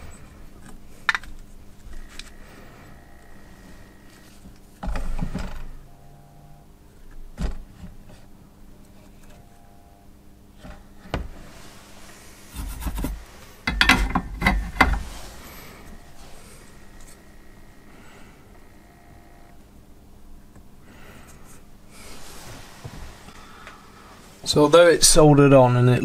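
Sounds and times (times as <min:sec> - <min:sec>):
faint steady hum: 0:00.0 - 0:26.0
parts clattering: 0:10.6 - 0:17.6
rattling clicks and scrapes: 0:12.4 - 0:16.0
small parts knocking and rustling: 0:12.6 - 0:15.5.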